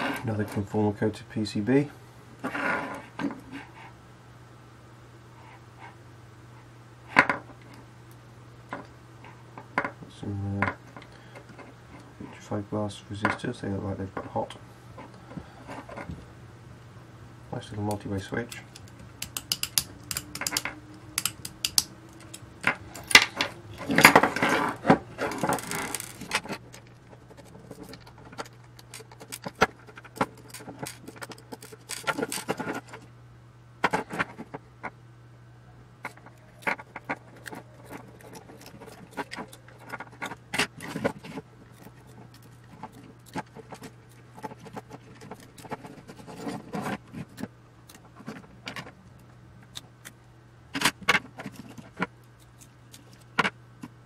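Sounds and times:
scraping rattle: 19.3s - 33.0s
metal parts clinking: 25.2s - 29.6s, 30.2s - 32.6s.

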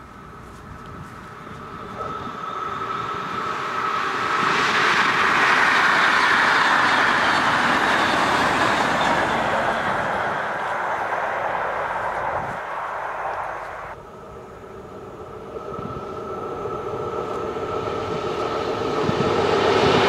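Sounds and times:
train passing at speed: 0.0s - 20.0s.

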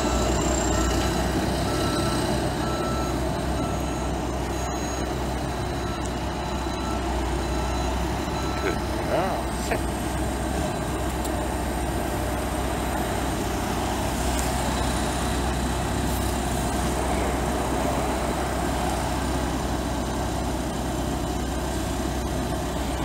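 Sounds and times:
city street traffic: 0.0s - 23.0s.

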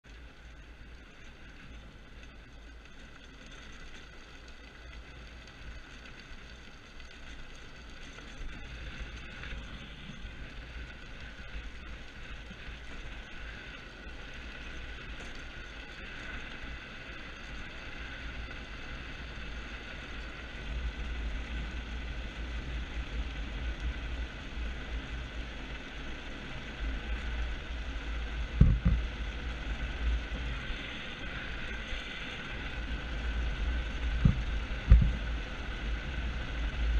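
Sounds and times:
small tyres rolling on concrete: 0.0s - 36.9s
wind buffeting microphone: 28.4s - 36.9s.

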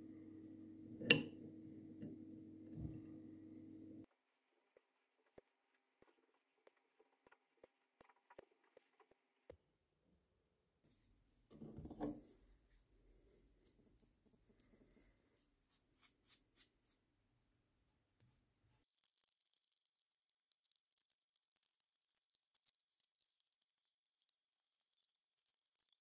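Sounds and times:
brush strokes on metal: 11.8s - 17.0s
paint stripper crackling and fizzing: 18.7s - 26.0s.

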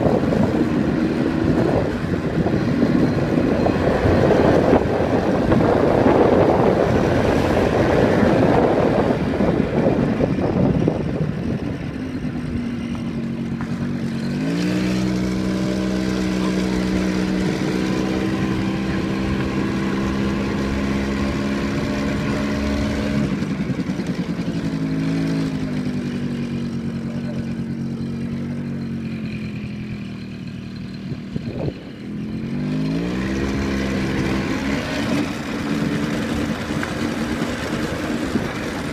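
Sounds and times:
wind rushing: 0.0s - 11.8s
road noise: 0.0s - 38.9s
vehicle engine hum: 0.0s - 38.9s.

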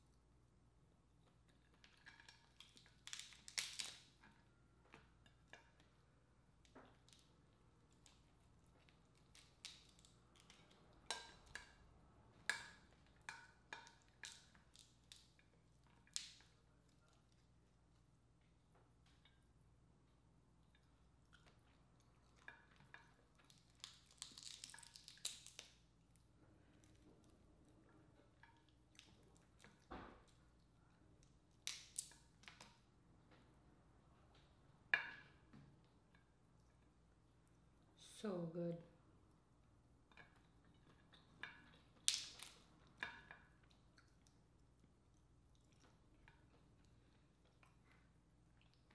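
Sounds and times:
crab shell cracking: 1.8s - 4.3s, 8.8s - 11.8s, 12.5s - 16.6s, 22.4s - 26.2s, 31.5s - 32.8s, 41.0s - 43.4s.

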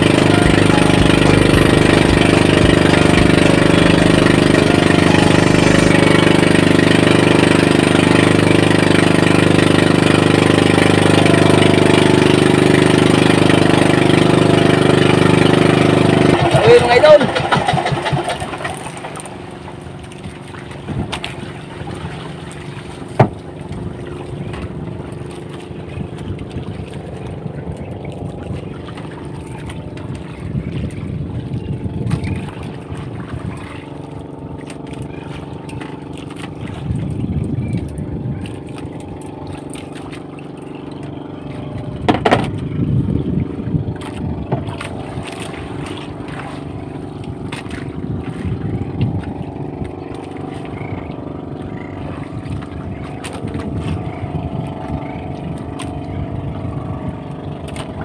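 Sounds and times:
boat engine running: 0.0s - 58.0s
sharp knocks: 42.0s - 42.6s.

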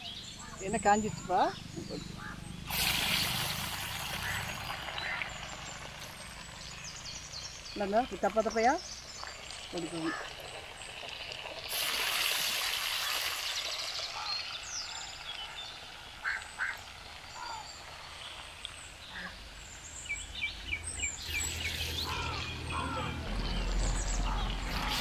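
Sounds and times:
food sizzling in hot oil: 2.6s - 7.8s, 8.4s - 18.7s.

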